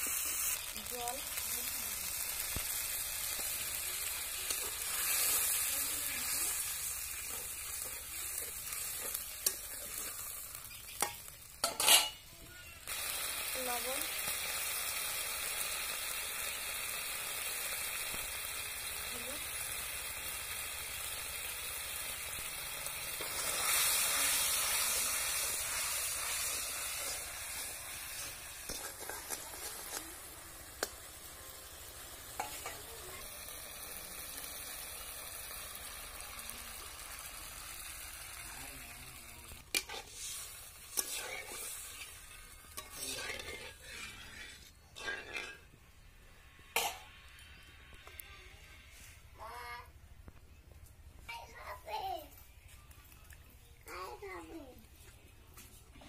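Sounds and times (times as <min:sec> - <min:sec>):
spice paste sizzling and bubbling: 0:00.0 - 0:56.0
spatula scraping a pan: 0:04.5 - 0:12.2, 0:23.1 - 0:30.3, 0:39.7 - 0:45.8.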